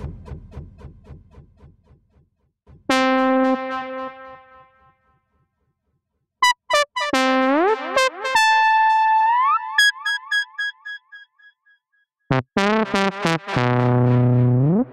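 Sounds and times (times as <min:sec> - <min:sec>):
synthesizer notes: 0:02.9 - 0:04.7, 0:06.4 - 0:11.4, 0:12.3 - 0:14.9.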